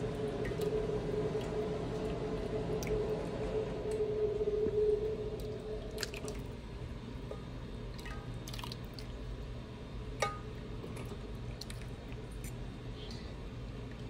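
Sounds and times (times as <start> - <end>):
steady hum: 0.0 - 14.0
soft wet drips of gravy: 7.9 - 9.5, 10.6 - 14.0.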